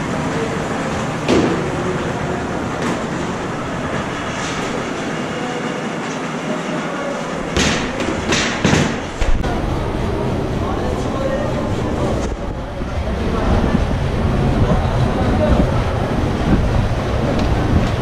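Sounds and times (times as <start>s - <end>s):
factory machinery noise: 0.0s - 18.0s
knocks and thuds: 7.5s - 9.4s.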